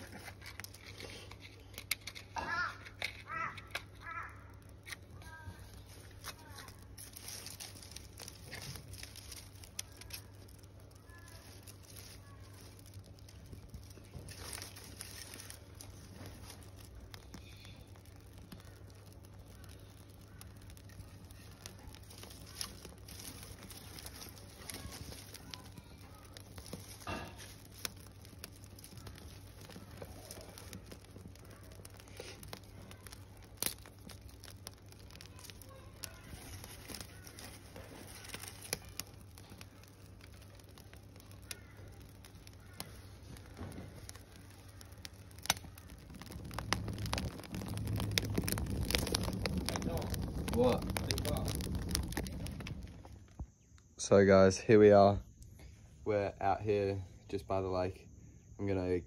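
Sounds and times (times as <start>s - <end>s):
sticks rustling and snapping: 0.0s - 53.7s
small fire crackling: 0.0s - 59.0s
low steady rumble: 4.4s - 54.1s.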